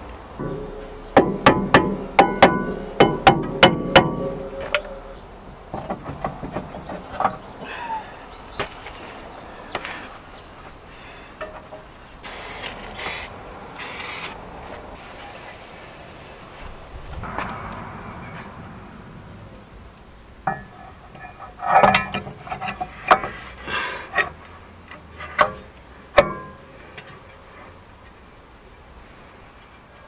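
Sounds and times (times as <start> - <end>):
hammer striking metal disc: 0.4 - 5.2.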